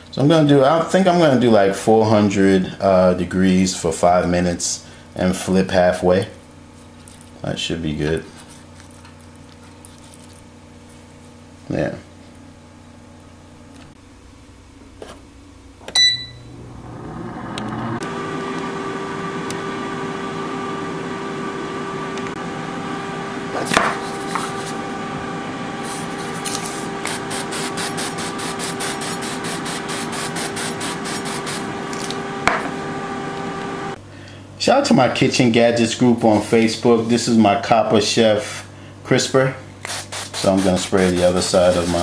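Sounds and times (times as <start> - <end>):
fan motor humming: 0.0 - 42.0
air fryer beeping: 15.8 - 24.1, 29.8 - 34.0.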